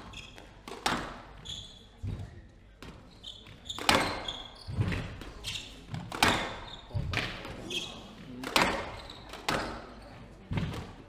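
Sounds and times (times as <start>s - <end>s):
shoes squeaking on wooden floor: 0.0s - 10.3s
squash ball struck by rackets: 0.0s - 11.0s
ball slapping off walls: 3.7s - 7.6s.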